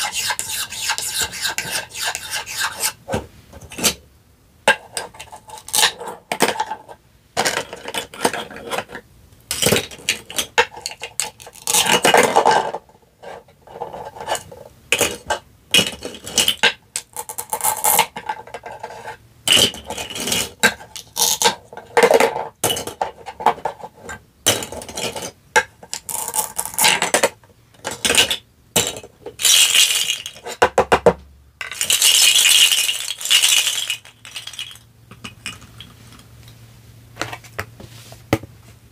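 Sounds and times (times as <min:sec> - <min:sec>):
plastic pieces clacking: 0:25.9 - 0:30.9, 0:31.6 - 0:35.9.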